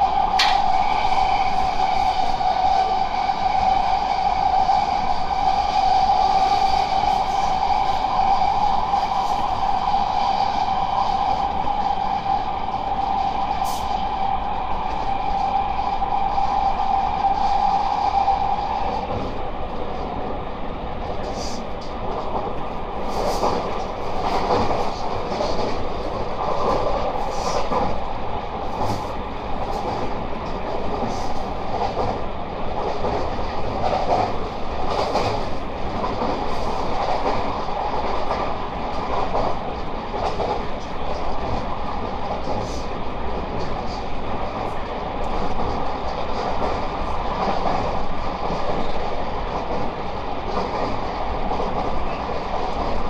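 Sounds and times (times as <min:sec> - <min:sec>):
train wheels rumbling on rail: 0:00.0 - 0:53.0
sharp rail clicks: 0:00.3 - 0:00.8.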